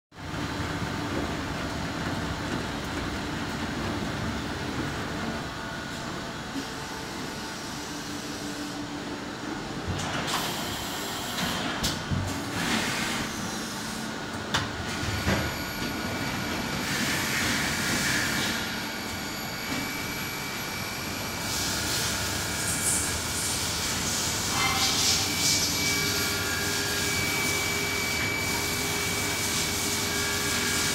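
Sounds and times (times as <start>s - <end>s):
machining center humming: 0.2s - 10.0s
machining center running: 0.2s - 11.7s, 13.3s - 30.9s
low mechanical hum: 0.2s - 30.9s.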